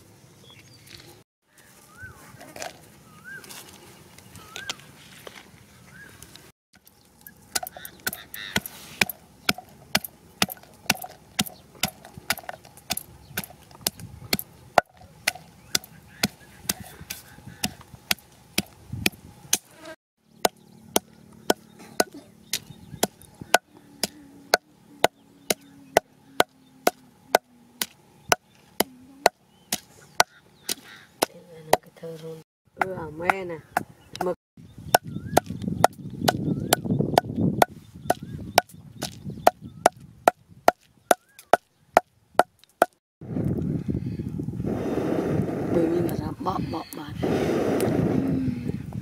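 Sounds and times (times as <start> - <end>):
pestle pounding in wooden mortar: 7.5 - 19.6.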